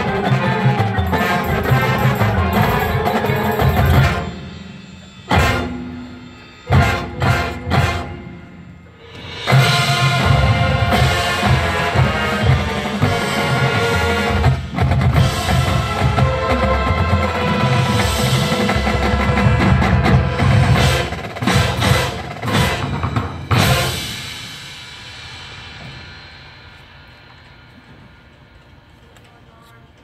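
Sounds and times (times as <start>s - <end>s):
marching band playing: 0.0s - 28.2s
drums and percussion: 0.0s - 30.0s.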